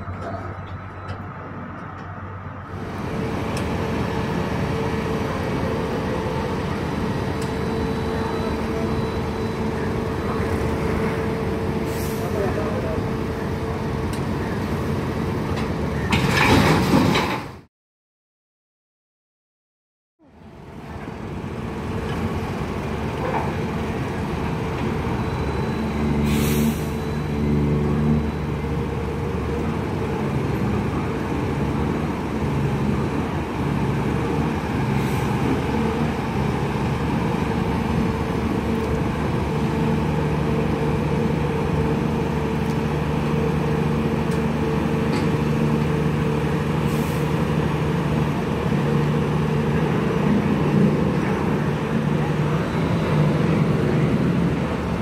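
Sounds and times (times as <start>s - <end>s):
heavy diesel engines running: 0.0s - 17.6s, 20.2s - 55.0s
air brake hisses: 11.8s - 12.4s, 26.2s - 27.2s, 35.0s - 35.4s, 46.8s - 47.4s.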